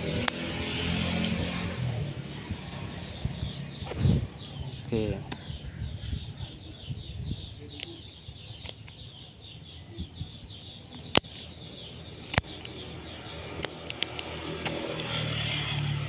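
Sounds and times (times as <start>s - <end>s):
pruning shears snipping: 0.0s - 1.5s, 10.9s - 11.5s, 12.2s - 12.8s, 13.5s - 15.8s
faint birds chirping: 0.5s - 16.0s.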